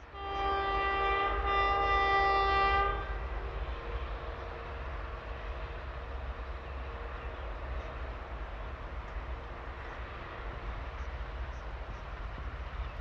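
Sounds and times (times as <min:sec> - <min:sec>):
distant locomotive rumble: 0:00.0 - 0:13.0.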